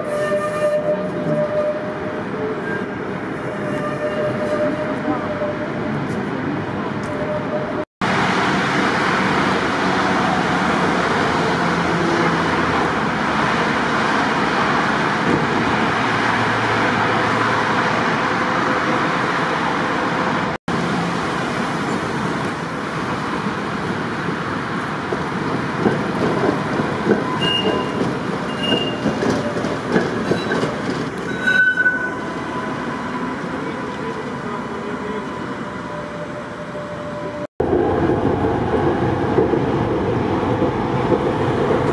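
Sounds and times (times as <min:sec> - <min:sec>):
high wheel squeals: 0:00.0 - 0:05.6, 0:27.1 - 0:37.5
steel wheels rumbling on rail: 0:00.0 - 0:41.9.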